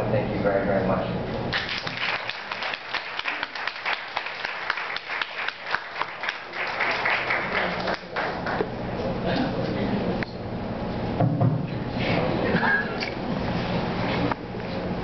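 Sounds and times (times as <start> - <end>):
audience applauding: 1.5 - 8.7.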